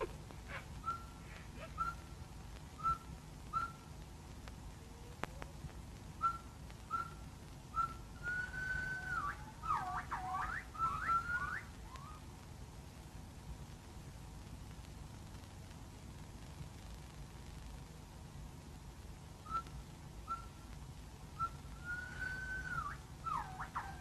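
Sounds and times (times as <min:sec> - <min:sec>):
whistled calls: 0:00.5 - 0:02.2, 0:02.8 - 0:03.9, 0:06.2 - 0:12.3, 0:19.4 - 0:20.7, 0:21.4 - 0:24.0.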